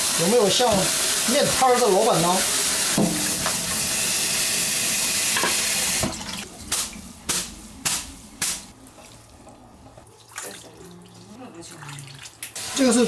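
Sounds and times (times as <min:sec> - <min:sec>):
tap water rushing into sink: 0:00.0 - 0:06.4
water dripping: 0:06.1 - 0:12.6.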